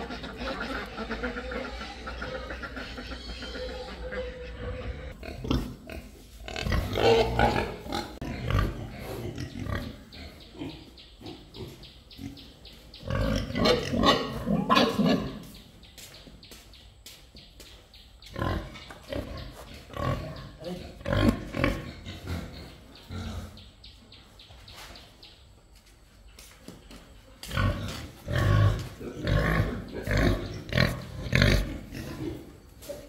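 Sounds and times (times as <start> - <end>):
loud animal calls: 0.0 - 5.6.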